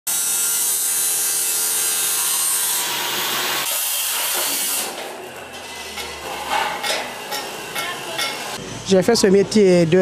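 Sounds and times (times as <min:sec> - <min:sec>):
electric arc welder crackling: 0:00.1 - 0:08.6
steel grinding hiss: 0:00.1 - 0:09.0.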